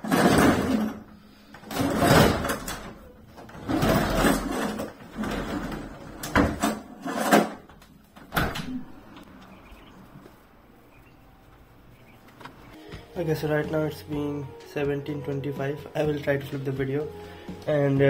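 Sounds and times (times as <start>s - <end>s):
window screen scraping and rattling: 0.0s - 7.8s.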